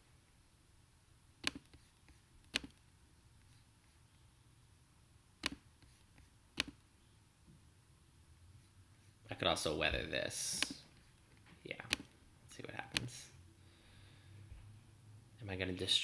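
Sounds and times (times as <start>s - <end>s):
computer mouse clicks: 1.4s - 2.8s, 5.4s - 6.8s, 10.5s - 10.8s, 11.8s - 12.1s, 12.9s - 13.1s.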